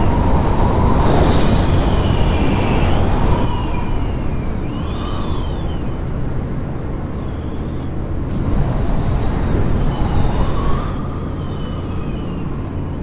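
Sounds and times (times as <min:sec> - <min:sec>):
aircraft engine and propeller droning: 0:00.0 - 0:13.0
wind noise: 0:00.0 - 0:13.0.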